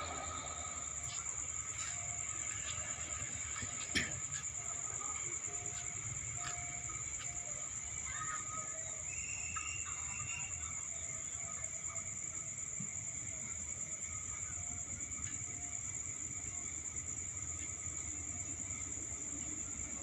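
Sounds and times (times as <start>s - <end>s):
faint low rumble: 0.0s - 2.4s
crickets chirring: 0.0s - 20.0s.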